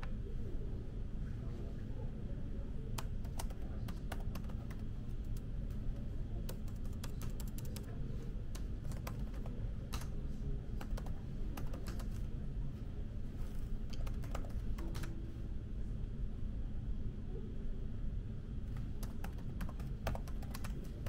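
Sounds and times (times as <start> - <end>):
steady low hum: 0.0 - 21.0
laptop keyboard typing: 2.9 - 5.8, 6.4 - 12.3, 13.9 - 15.2, 18.7 - 21.0.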